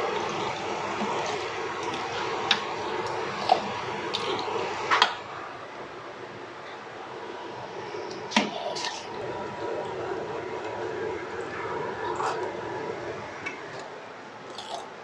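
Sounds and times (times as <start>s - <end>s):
ladle stirring wet squelching: 0.0s - 5.1s, 7.9s - 11.5s.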